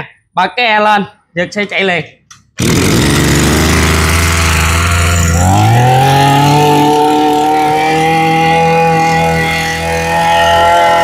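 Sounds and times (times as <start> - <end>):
pull-start cord: 2.3 - 5.6
brush cutter engine: 2.4 - 11.0.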